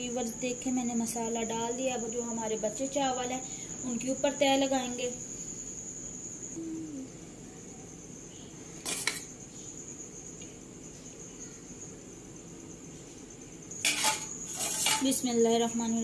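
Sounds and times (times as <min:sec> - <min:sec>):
steady high-pitched tone: 0:04.3 - 0:07.8
metal spoon spreading rice in pot: 0:13.9 - 0:15.1.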